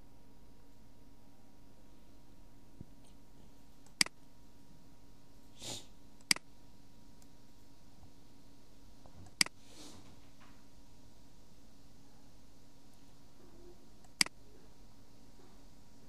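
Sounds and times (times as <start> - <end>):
low steady hum: 0.0 - 16.0
person sniffing: 5.5 - 6.0, 9.6 - 10.1
computer mouse clicks: 9.2 - 9.6, 14.0 - 14.4.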